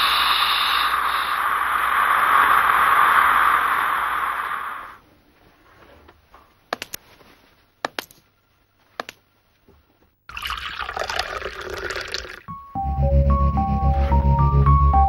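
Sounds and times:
steady hiss: 0.0s - 5.7s
liquid pouring into a mug: 10.3s - 12.5s.

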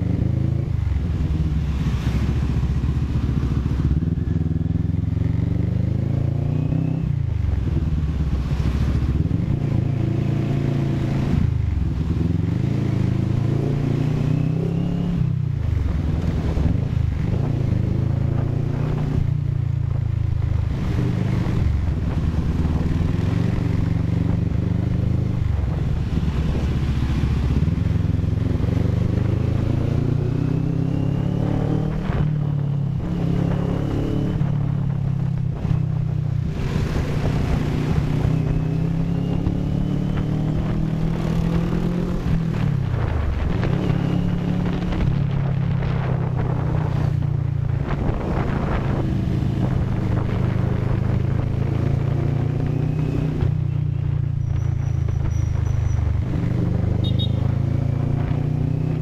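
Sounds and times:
motorcycle engine accelerating: 0.0s - 59.0s
wind rush on microphone: 0.0s - 59.0s.

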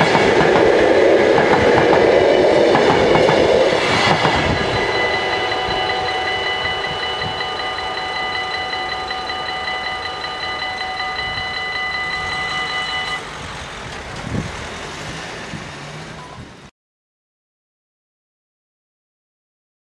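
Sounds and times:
railroad crossing bells ringing: 0.0s - 14.2s, 16.2s - 16.5s
road traffic noise: 0.0s - 16.7s.

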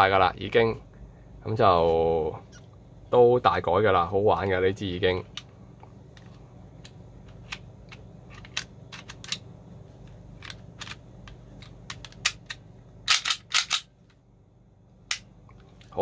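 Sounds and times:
low steady hum: 0.0s - 16.0s
pistol slide clicks and clacks: 11.9s - 13.9s.

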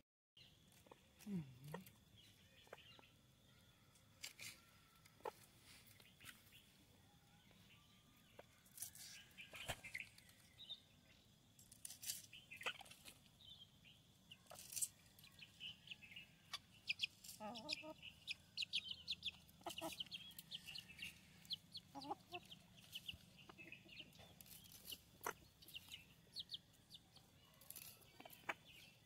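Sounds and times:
faint bird chirps: 0.4s - 29.0s.

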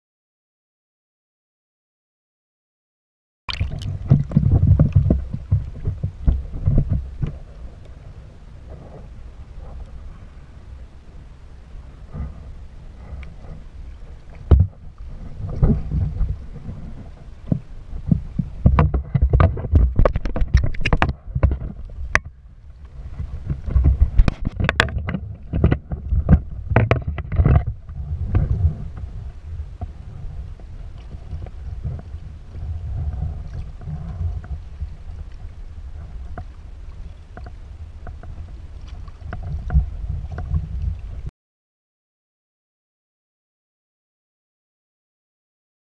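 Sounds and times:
fish thrashing at surface: 3.5s - 5.4s
water splashing around kayak: 3.5s - 41.3s
wind rumble on microphone: 3.5s - 41.3s.

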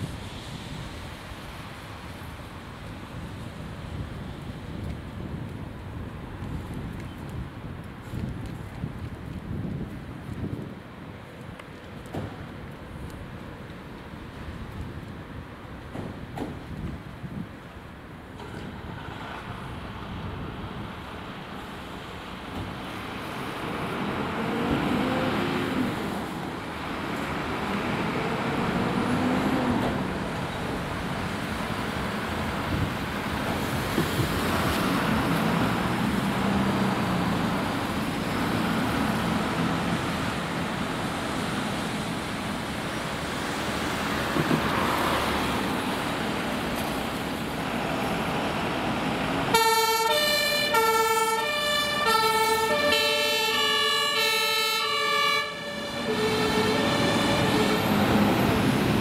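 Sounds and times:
diesel fire engines running: 0.0s - 59.0s
two-tone fire engine siren: 49.5s - 58.3s.

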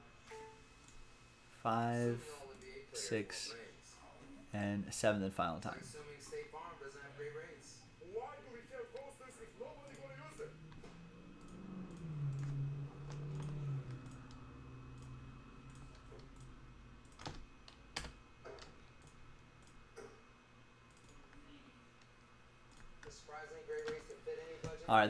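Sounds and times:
computer keyboard clicking: 9.8s - 20.1s, 20.9s - 21.3s, 23.8s - 24.2s
low hum dipping in pitch: 10.0s - 17.0s.

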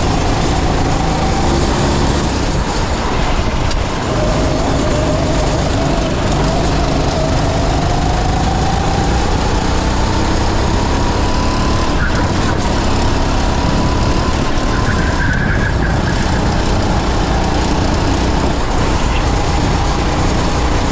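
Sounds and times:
wind rushing: 0.0s - 10.7s
kart engine revving: 0.0s - 20.9s.

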